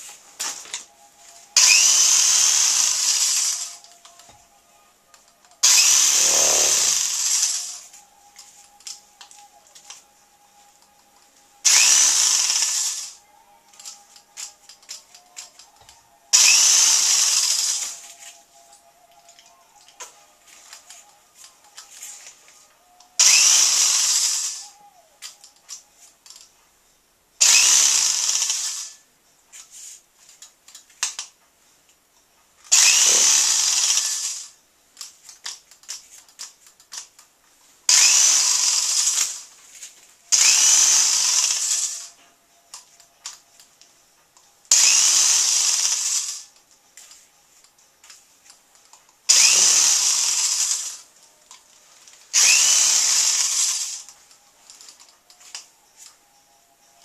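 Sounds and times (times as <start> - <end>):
electric drill whirring: 1.6 - 4.1, 5.6 - 8.0, 11.6 - 13.2, 16.3 - 18.4, 23.2 - 24.8, 27.4 - 29.0, 32.7 - 34.6, 37.9 - 39.5, 40.3 - 42.2, 44.7 - 46.6, 49.3 - 51.1, 52.4 - 54.1.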